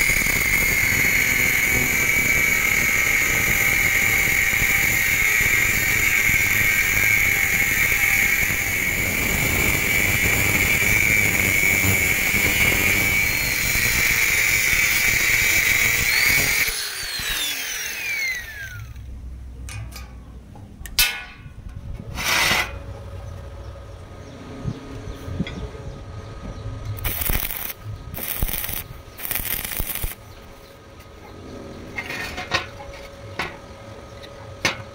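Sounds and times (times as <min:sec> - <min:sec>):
angle grinder cutting steel: 0:00.0 - 0:19.0, 0:27.0 - 0:30.2.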